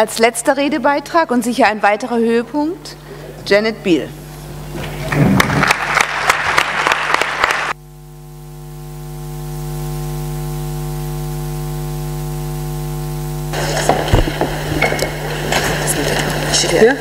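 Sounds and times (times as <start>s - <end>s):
electrical hum: 0.0s - 17.0s
noisy clatter: 4.7s - 7.8s, 13.5s - 17.0s
audience applause: 4.9s - 7.8s.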